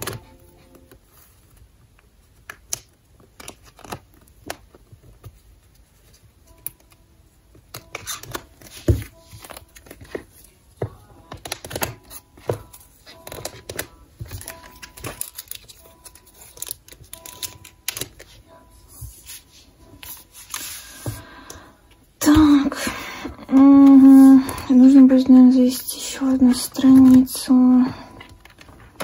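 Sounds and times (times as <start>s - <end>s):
card tapping on plastic: 7.7s - 15.7s
plastic sleeves crinkling: 11.3s - 18.4s.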